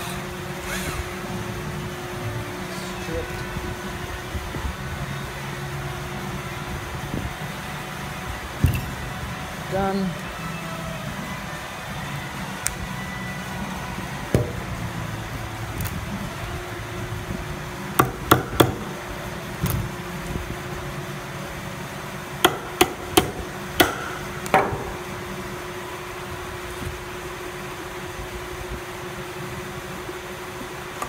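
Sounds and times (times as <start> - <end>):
hammer striking metal bracket: 14.3 - 14.8, 18.0 - 18.9, 22.4 - 25.0.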